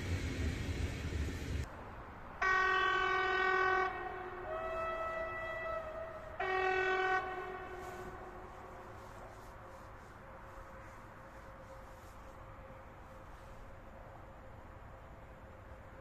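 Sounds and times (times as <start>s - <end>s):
distant locomotive horn: 2.4s - 13.6s.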